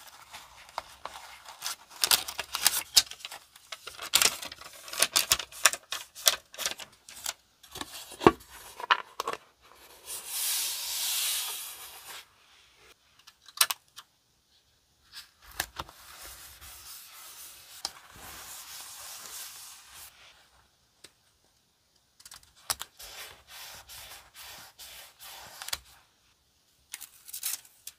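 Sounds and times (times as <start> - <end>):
paper crinkling and rustling: 0.0 - 9.4.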